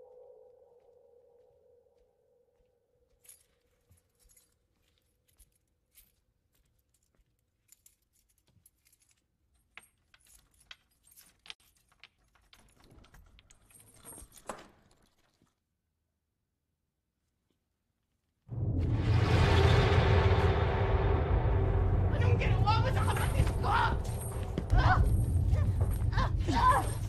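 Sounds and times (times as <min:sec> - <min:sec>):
metallic clicks and jingling: 0:03.2 - 0:15.4.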